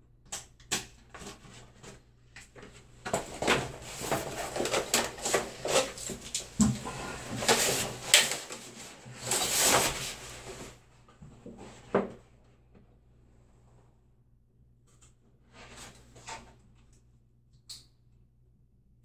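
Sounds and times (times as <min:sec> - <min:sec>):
wallpaper rustling and scraping: 0:01.1 - 0:12.3, 0:15.4 - 0:16.6.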